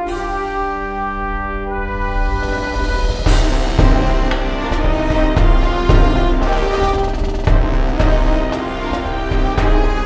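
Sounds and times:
sustained pitched notes: 0:01.0 - 0:10.0
low drum hit: 0:02.0 - 0:10.0.

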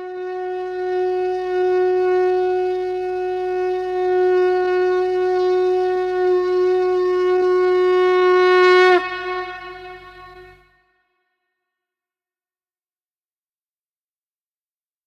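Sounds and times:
long horn blast: 0:00.0 - 0:11.0.

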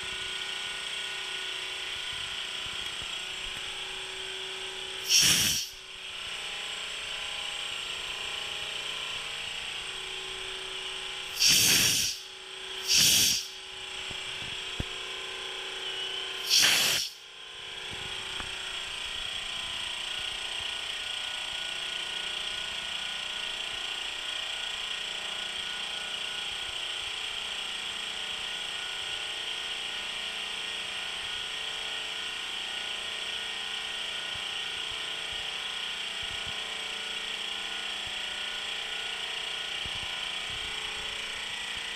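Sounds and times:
air compressor running: 0:00.0 - 0:41.9
loud air hiss bursts: 0:05.0 - 0:05.9, 0:11.3 - 0:13.7, 0:16.4 - 0:17.2.

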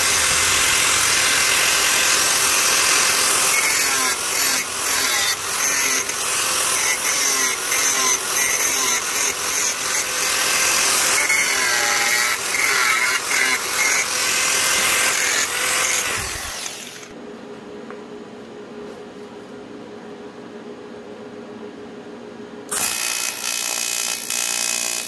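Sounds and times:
angle grinder grinding metal: 0:00.0 - 0:17.1.

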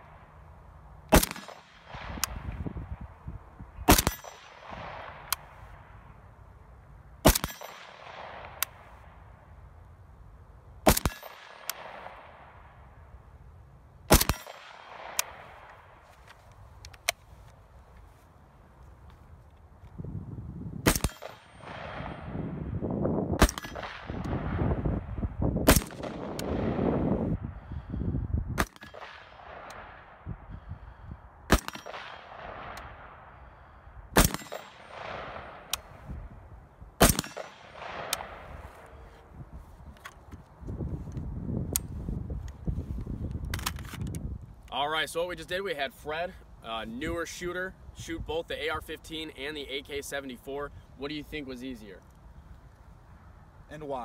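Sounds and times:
rifle shots with rolling echo: 0:00.0 - 0:03.2, 0:03.8 - 0:06.4, 0:07.1 - 0:09.6, 0:10.8 - 0:13.3, 0:14.0 - 0:16.4, 0:20.8 - 0:27.8, 0:28.6 - 0:30.3, 0:31.4 - 0:39.2.

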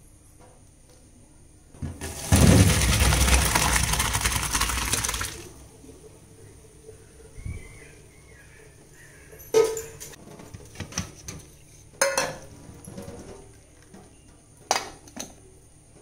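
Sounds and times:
water pouring into a bowl: 0:02.0 - 0:05.6.

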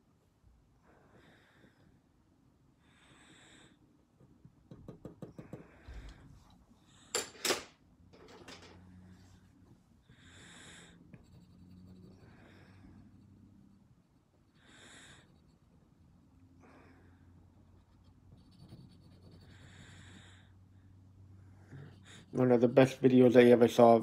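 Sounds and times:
soft breathing: 0:00.7 - 0:04.3, 0:05.3 - 0:07.2, 0:08.8 - 0:17.8, 0:19.2 - 0:22.5
pencil scratching on paper: 0:10.8 - 0:16.0, 0:17.6 - 0:20.4, 0:21.6 - 0:23.8.

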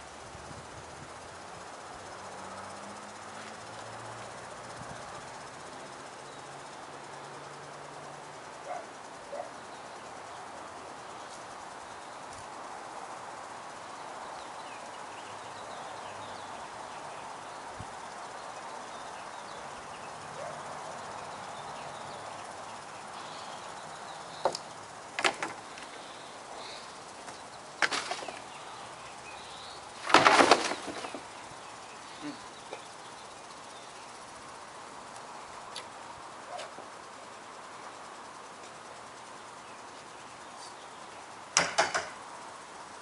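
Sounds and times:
faint outdoor background: 0:00.0 - 0:43.0
plastic bin clattering: 0:27.8 - 0:28.5, 0:30.0 - 0:31.3.

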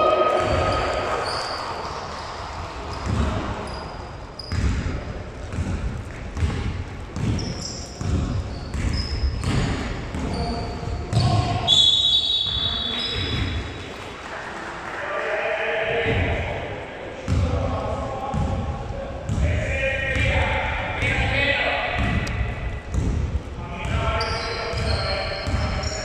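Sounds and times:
sneakers squeaking on floor: 0:00.0 - 0:13.9, 0:23.8 - 0:26.0
basketball dribbling thumps: 0:04.5 - 0:11.6, 0:22.0 - 0:24.0, 0:24.7 - 0:25.9.

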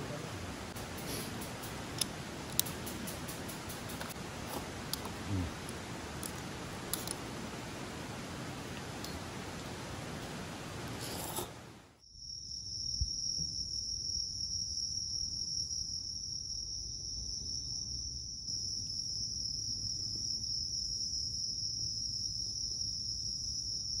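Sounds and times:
crickets trilling: 0:00.0 - 0:24.0.

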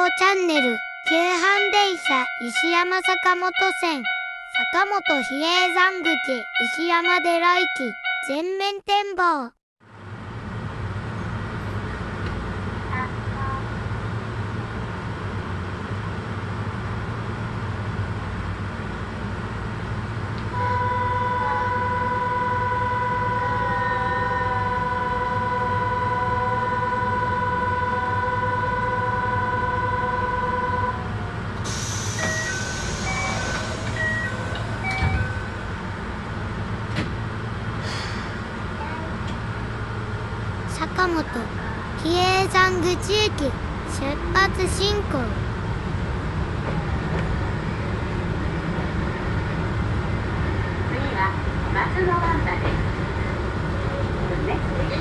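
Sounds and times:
short alternating beeps: 0:00.0 - 0:08.6
train low hum: 0:00.0 - 0:08.7, 0:09.9 - 0:55.0.

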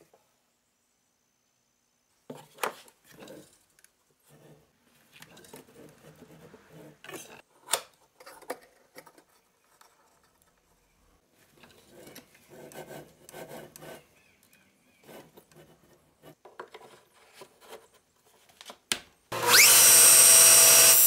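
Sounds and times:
light scraping and rubbing: 0:02.3 - 0:07.5.

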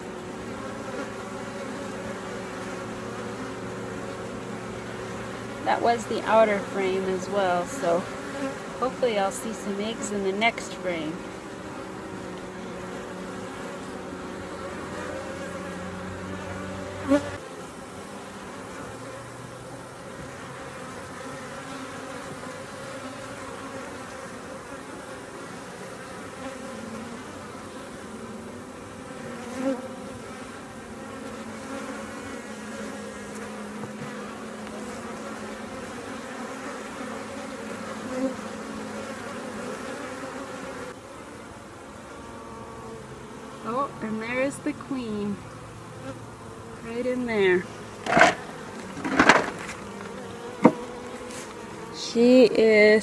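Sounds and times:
bees humming: 0:00.0 - 0:53.0.

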